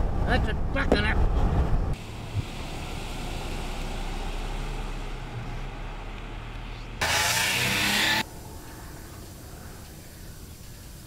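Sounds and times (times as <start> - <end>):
road and tyre noise: 0.0 - 11.0
car engine running: 1.9 - 8.2.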